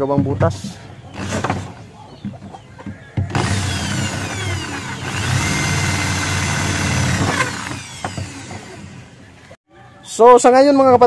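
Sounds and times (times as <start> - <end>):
electric drill boring: 1.2 - 1.5, 3.3 - 9.0.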